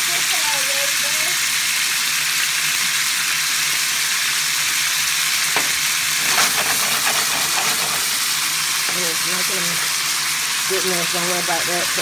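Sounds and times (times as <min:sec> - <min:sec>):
beef sizzling in frying pan: 0:00.0 - 0:12.0
crackles: 0:03.5 - 0:11.2.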